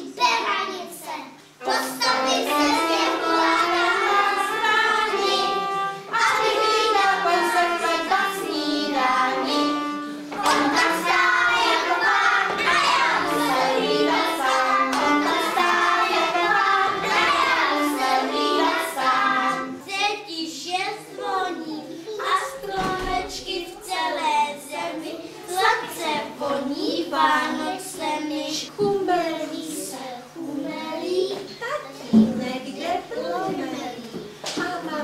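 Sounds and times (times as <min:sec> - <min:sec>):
musical accompaniment: 0:01.6 - 0:19.8
children singing: 0:01.6 - 0:20.1, 0:20.8 - 0:31.2.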